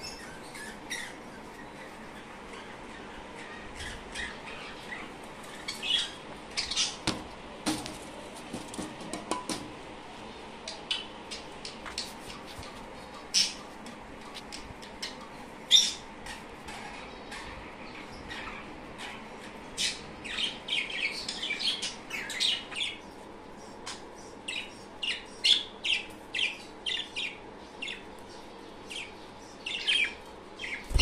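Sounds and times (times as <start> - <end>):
budgerigars squawking and chirping: 0.0 - 7.0, 14.5 - 28.0
light scratching and clicking: 11.6 - 15.4.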